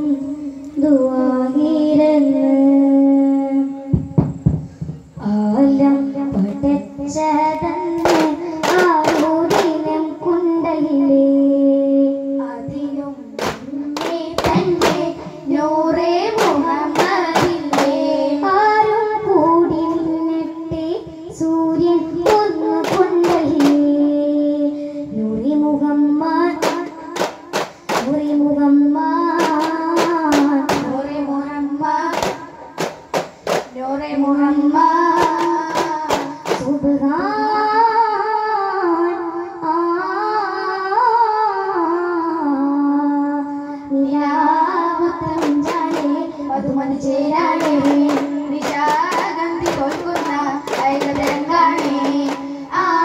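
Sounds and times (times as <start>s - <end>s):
high voices singing: 0.0s - 42.6s, 43.4s - 53.0s
sharp hand claps: 8.0s - 9.8s, 13.4s - 15.3s, 26.6s - 28.2s, 32.2s - 33.8s, 35.2s - 36.7s, 47.6s - 52.5s.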